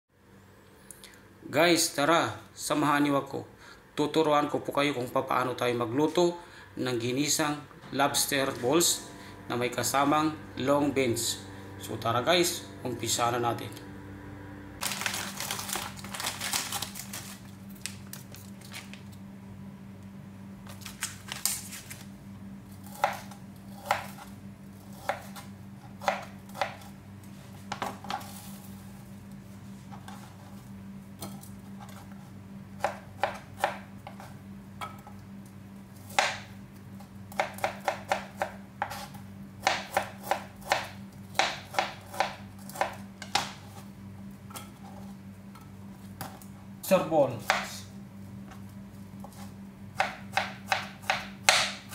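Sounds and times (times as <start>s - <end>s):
steady low hum: 0.1s - 51.9s.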